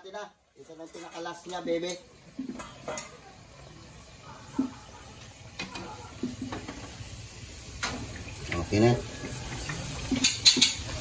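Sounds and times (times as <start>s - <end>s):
fritters sizzling in hot oil: 0.6s - 11.0s
utensil clinking: 10.1s - 11.0s.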